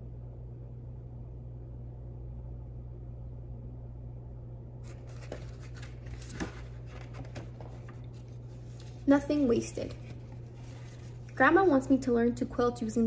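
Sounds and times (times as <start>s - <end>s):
low room hum: 0.0s - 13.0s
book pages turning: 4.8s - 11.4s.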